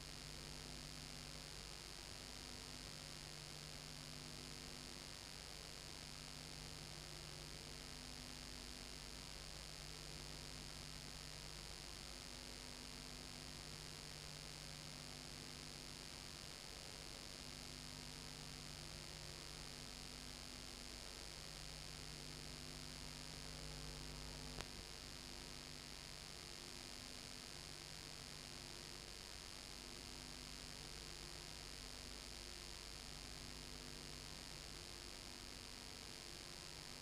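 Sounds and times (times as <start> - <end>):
electrical hum with hiss: 0.0 - 37.0
faint click: 24.5 - 24.8.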